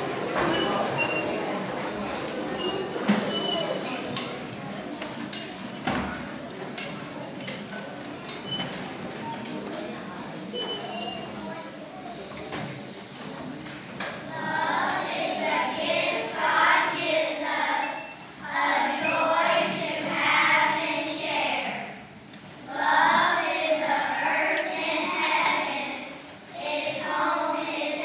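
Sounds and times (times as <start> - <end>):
children singing together: 14.3 - 22.0, 22.6 - 28.0.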